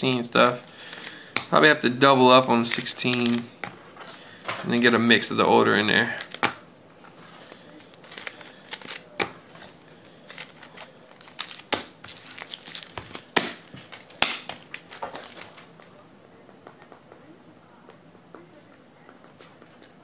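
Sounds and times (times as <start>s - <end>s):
plastic packaging clicks and crinkles: 0.0s - 1.2s, 2.6s - 3.5s, 5.6s - 6.6s, 7.3s - 16.0s.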